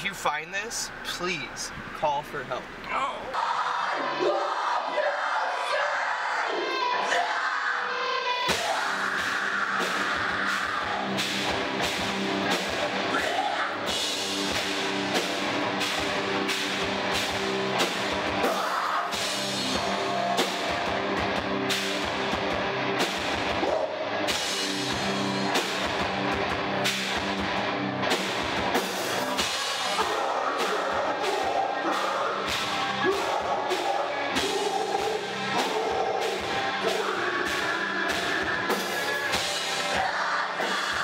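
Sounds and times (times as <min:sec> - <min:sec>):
live rock band playing: 0:08.5 - 0:41.0.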